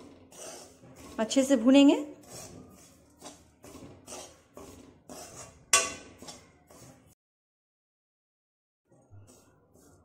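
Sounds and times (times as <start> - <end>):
metal spoon scraping metal pan: 0.0 - 7.2, 9.0 - 10.0.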